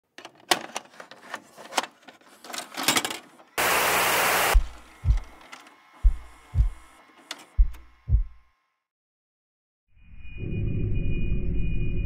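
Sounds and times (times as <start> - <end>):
burst of loud static: 3.6 - 4.7
low deep thumps: 4.6 - 5.3, 6.0 - 6.9, 7.6 - 8.4.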